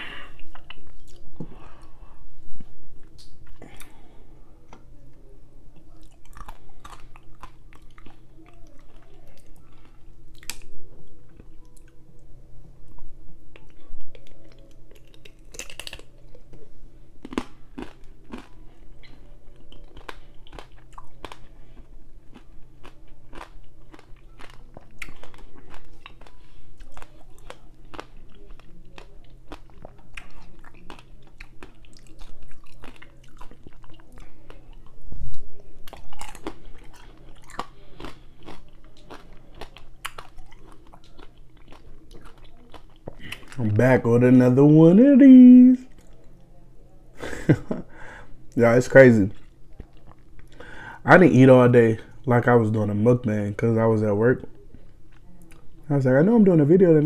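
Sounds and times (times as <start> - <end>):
faint low hum: 0.0 - 57.0
mouth chewing wet clicks: 5.8 - 10.7, 12.9 - 16.5, 17.2 - 35.0, 35.6 - 43.6.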